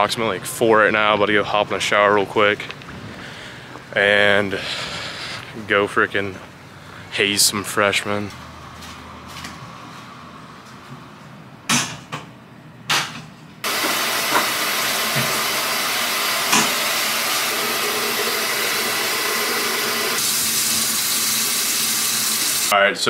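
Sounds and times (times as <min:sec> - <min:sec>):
shower spray hissing: 0:13.7 - 0:22.7.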